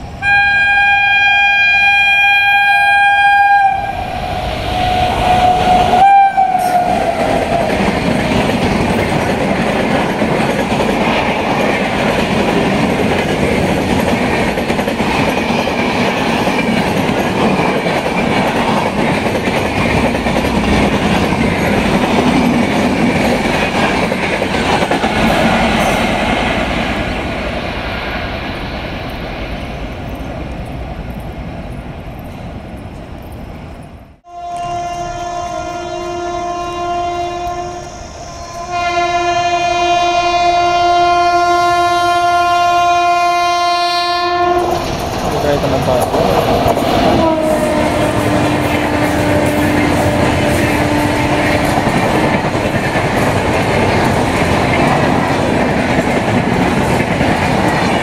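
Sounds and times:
locomotive horn chord: 0:00.2 - 0:04.0, 0:34.2 - 0:44.8
train wheels on rails: 0:03.6 - 0:58.0.

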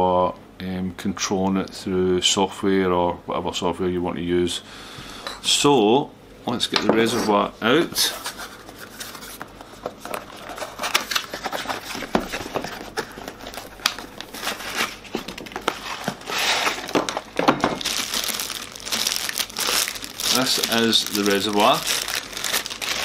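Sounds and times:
plastic bag crinkling: 0:10.0 - 0:23.0.

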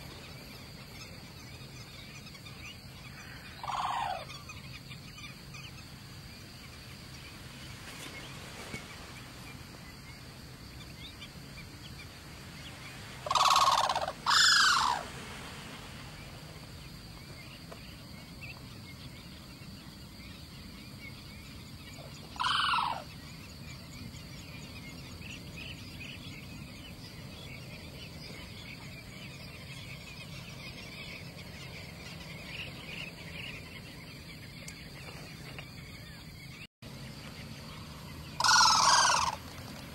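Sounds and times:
outdoor background: 0:00.0 - 0:39.9
crane calling: 0:03.0 - 0:04.6, 0:13.2 - 0:15.1, 0:22.2 - 0:23.1, 0:37.4 - 0:39.9.

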